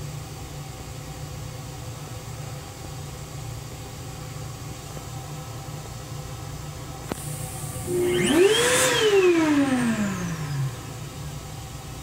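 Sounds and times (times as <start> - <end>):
electric hand dryer whining: 7.6 - 11.3.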